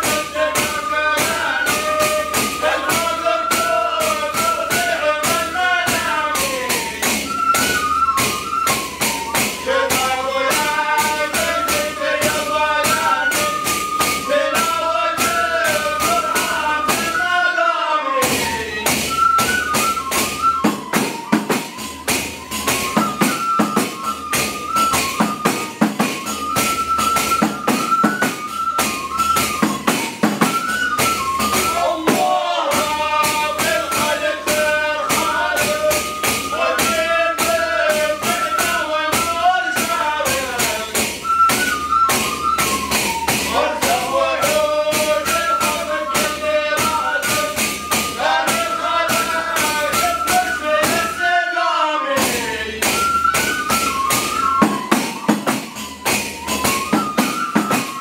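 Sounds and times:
men chanting: 0.0 - 7.2, 9.6 - 19.0, 31.6 - 41.0, 43.5 - 53.1
frame drums beating: 0.0 - 17.4, 18.2 - 51.4, 52.1 - 58.0.

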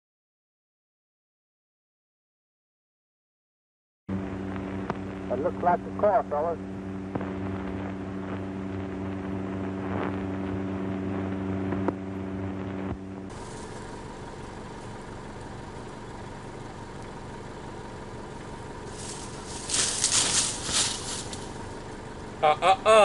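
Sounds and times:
crackling noises: 4.1 - 16.2, 18.3 - 22.0
car engine humming: 4.1 - 23.0.

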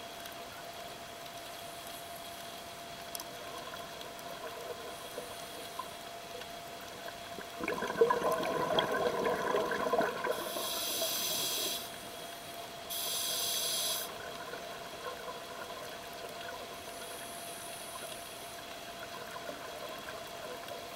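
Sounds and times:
regulator bubbling: 7.4 - 11.4
hissing in-breaths through regulator: 10.0 - 12.3, 12.9 - 14.4, 16.8 - 18.6.

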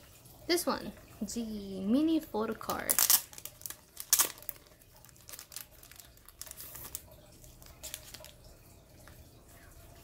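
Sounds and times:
plastic wrapper crinkling: 2.6 - 9.2.

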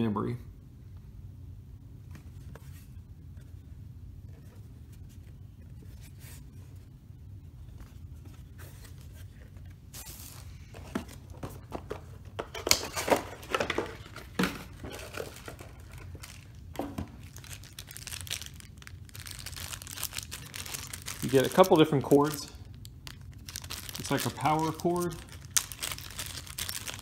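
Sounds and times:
low room hum: 0.0 - 27.0
cardboard rustling: 7.6 - 22.4, 23.0 - 27.0
plastic bags crinkling: 12.4 - 27.0.

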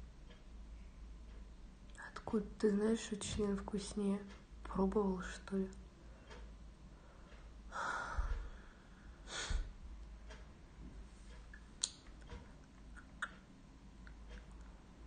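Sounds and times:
woman exhaling: 7.7 - 9.7.

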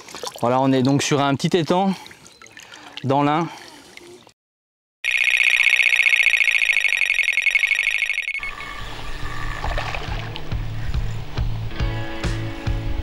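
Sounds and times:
electronic alarm high beeps: 5.0 - 8.9.

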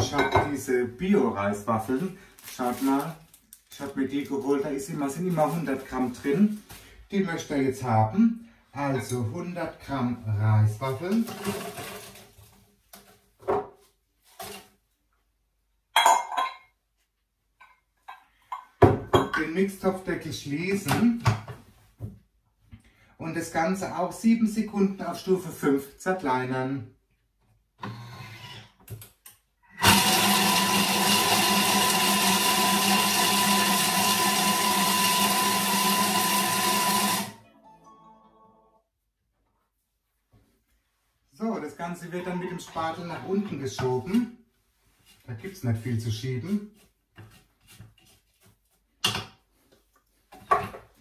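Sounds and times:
glass bowl clinking on worktop: 0.0 - 0.6, 16.0 - 16.7
food processor blade whirring: 29.8 - 37.3.

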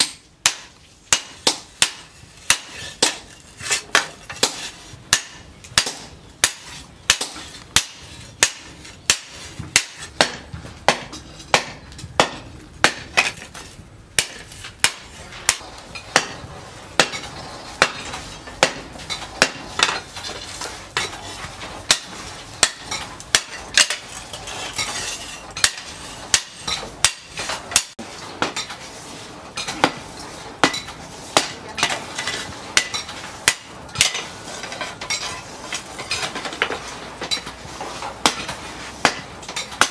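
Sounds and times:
hammer striking metal on anvil: 0.0 - 3.3, 3.9 - 13.4, 14.2 - 20.0, 21.9 - 24.0, 25.6 - 28.6, 32.8 - 34.3.

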